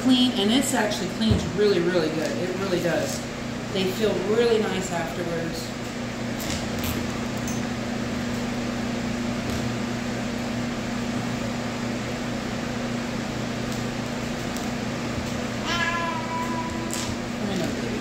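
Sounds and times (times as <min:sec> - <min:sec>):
electric fan humming: 0:00.0 - 0:18.0
cat meowing: 0:15.6 - 0:17.1.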